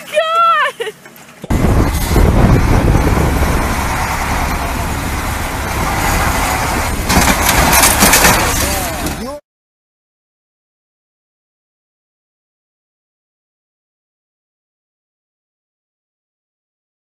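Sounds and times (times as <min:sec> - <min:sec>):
dump truck engine rumble: 0:01.4 - 0:09.4.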